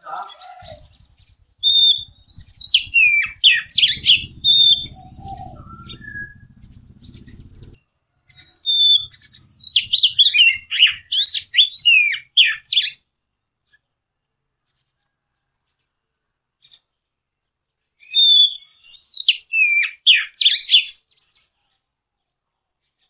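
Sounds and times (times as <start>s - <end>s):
bird singing whistled phrases: 0.3s - 7.6s, 8.6s - 13.0s, 18.0s - 21.0s.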